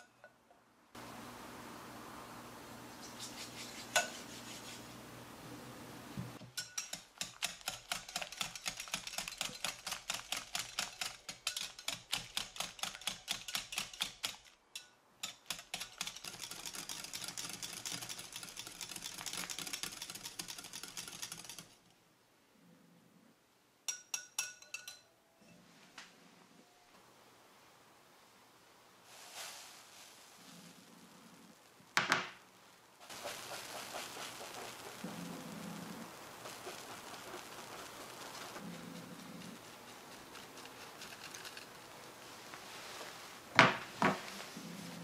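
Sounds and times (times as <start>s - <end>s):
whisk clicking against glass bowl: 6.6s - 21.8s
glass clink: 23.9s - 25.6s.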